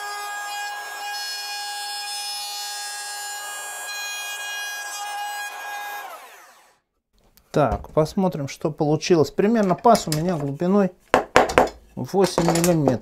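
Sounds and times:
router motor whining: 0:00.0 - 0:06.8.

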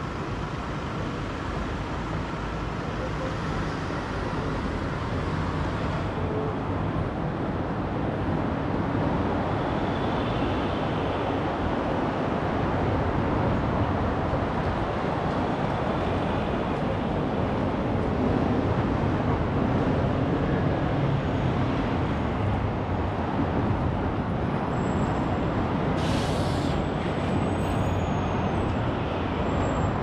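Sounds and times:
road traffic rumble: 0:00.0 - 0:30.0
brief hiss: 0:26.0 - 0:26.8.

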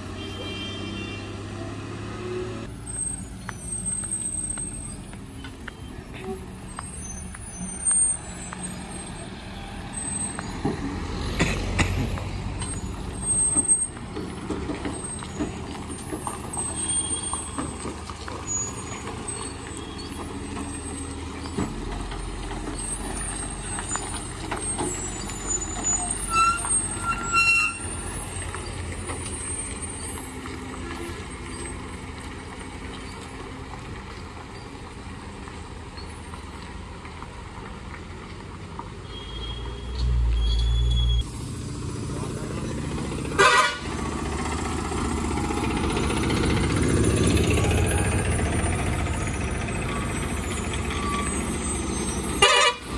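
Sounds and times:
lorry diesel engine under load: 0:00.0 - 0:52.9
short high squeals: 0:02.8 - 0:10.7, 0:16.5 - 0:17.8, 0:18.4 - 0:31.8, 0:39.0 - 0:41.2, 0:47.8 - 0:52.6.

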